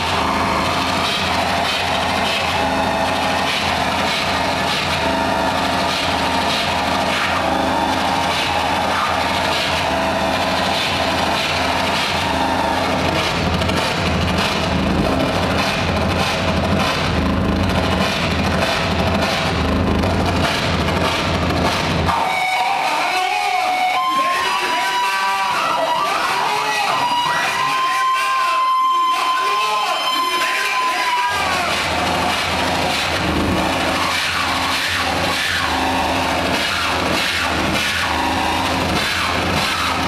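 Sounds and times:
pulsing low rumble: 0.0s - 22.1s
distorted noise wall: 0.0s - 40.0s
high squeals and gliding tones: 22.1s - 40.0s.

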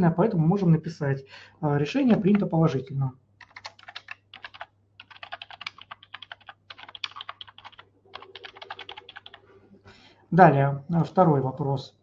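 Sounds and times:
person speaking: 0.0s - 3.1s, 10.3s - 12.0s
fast typing on keyboard: 3.4s - 9.4s.

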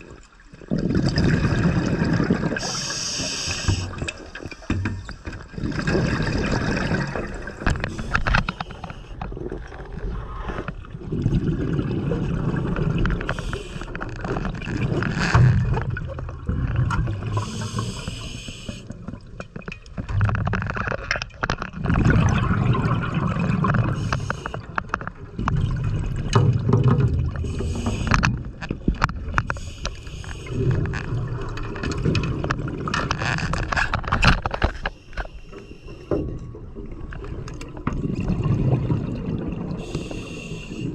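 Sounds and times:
exhaled bubbles gurgling: 0.0s - 34.8s, 36.2s - 40.9s
regulator inhalation hiss: 2.6s - 4.0s, 17.4s - 18.9s, 39.8s - 40.9s.

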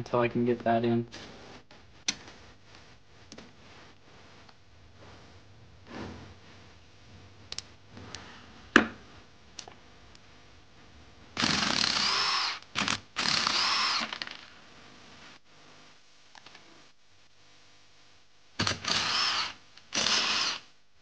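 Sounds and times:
cordless power driver whirring: 11.4s - 14.4s, 18.6s - 20.6s.

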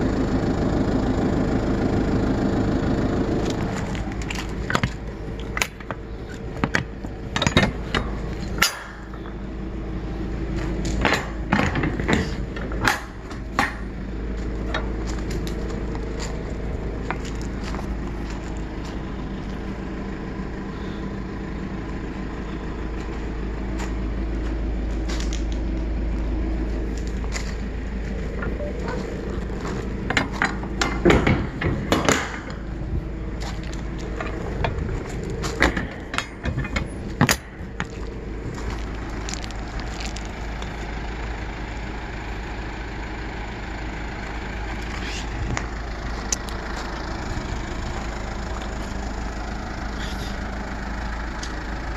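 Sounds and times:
diesel truck engine idling: 0.0s - 51.9s
metal door clanks and rattles: 30.0s - 32.6s, 34.2s - 38.0s.

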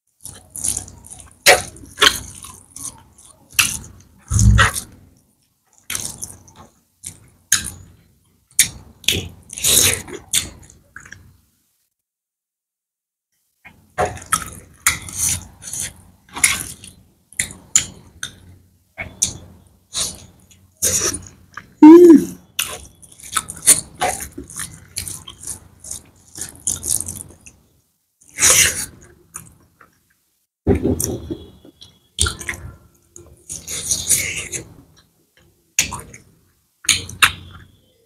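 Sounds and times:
wet chewing: 0.2s - 5.0s, 22.6s - 27.6s
short sound falling in pitch: 21.8s - 22.4s.

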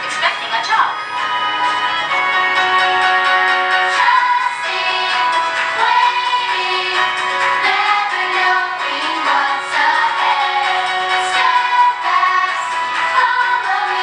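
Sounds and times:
singing voices with instruments: 3.7s - 14.0s.

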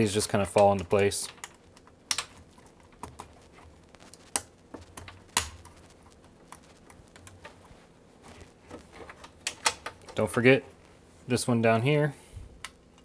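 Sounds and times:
plastic connectors ticking: 0.4s - 7.6s.

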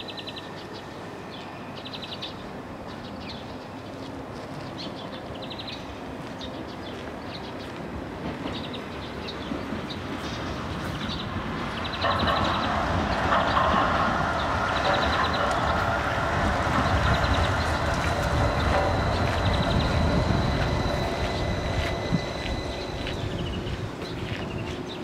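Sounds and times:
tram rumbling on rails: 0.0s - 25.0s
thin high whine: 14.9s - 24.4s.

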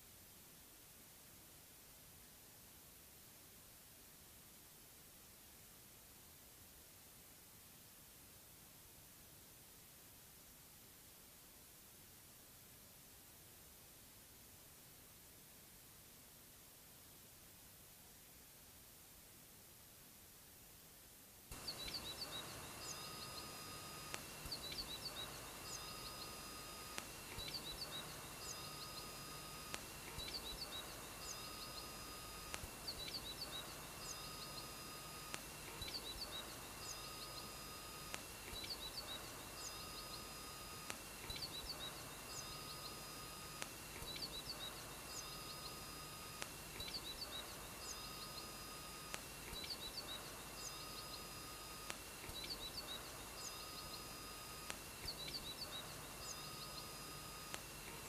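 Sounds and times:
constant high electronic tone: 21.5s - 58.0s
electronic bird-like chirps: 21.5s - 58.0s
short electronic beeps: 21.5s - 58.0s.

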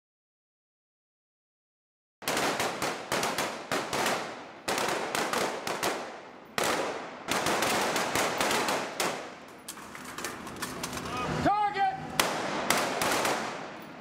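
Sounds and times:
rifles firing: 2.2s - 11.1s, 12.2s - 14.0s.

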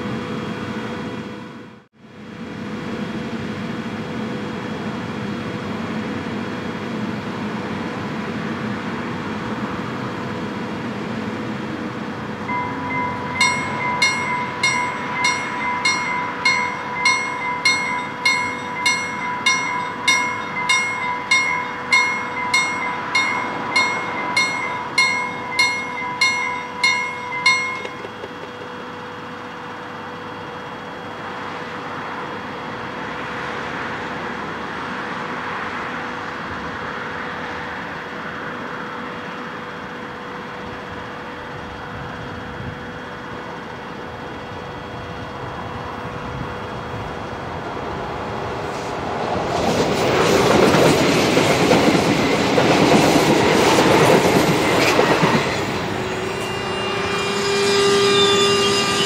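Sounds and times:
level crossing warning bell ringing: 12.4s - 28.8s.

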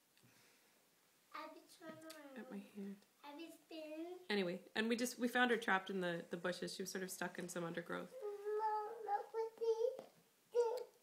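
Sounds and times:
young child singing: 8.2s - 11.0s.

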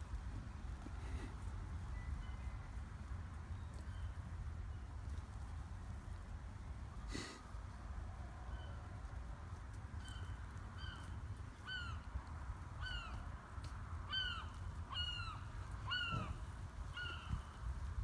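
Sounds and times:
bird calling in down-slurred notes: 14.1s - 17.6s.

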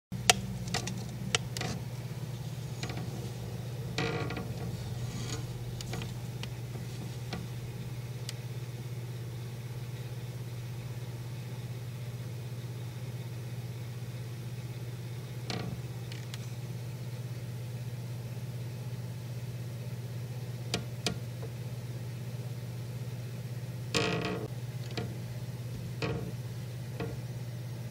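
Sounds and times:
steady low hum: 0.1s - 27.9s
faint clicks and knocks: 0.2s - 8.5s, 24.2s - 26.4s, 27.0s - 27.3s.

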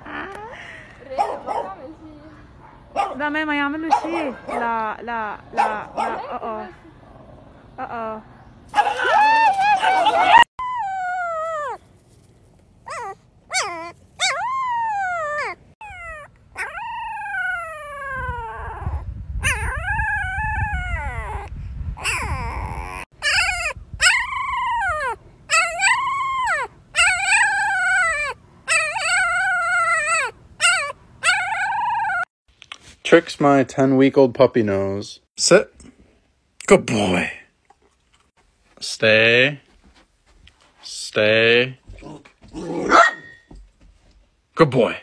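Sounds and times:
puppies howling: 8.8s - 11.8s, 12.9s - 32.3s.

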